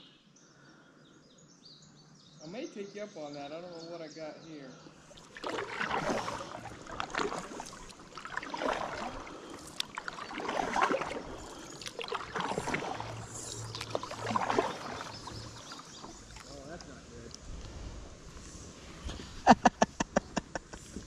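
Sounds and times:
kayak paddle splashing: 0:04.9 - 0:19.5
water dripping from paddle: 0:05.0 - 0:17.4.

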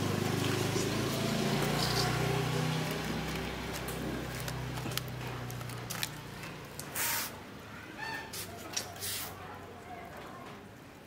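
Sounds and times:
aluminium foil crinkling: 0:01.5 - 0:07.3.

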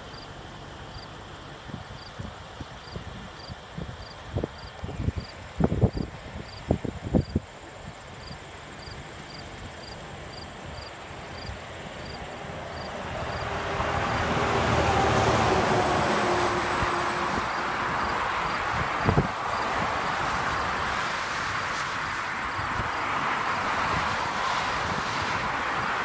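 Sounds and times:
insect chirping: 0:02.8 - 0:14.3, 0:17.5 - 0:19.6
truck passing on highway: 0:08.2 - 0:26.0.

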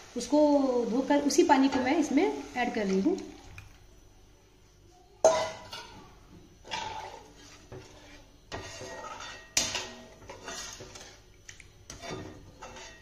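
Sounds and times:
spatula scraping pan: 0:06.6 - 0:11.3, 0:11.9 - 0:13.0.

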